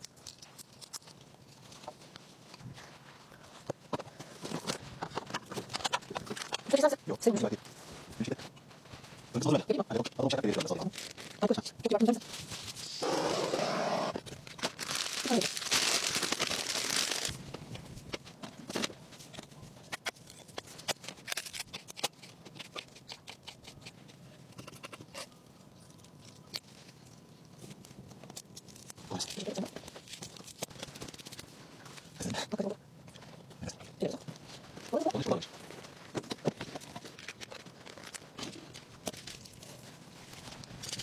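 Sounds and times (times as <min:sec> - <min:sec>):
plastic bag crinkling: 0:10.4 - 0:12.7, 0:14.4 - 0:17.4.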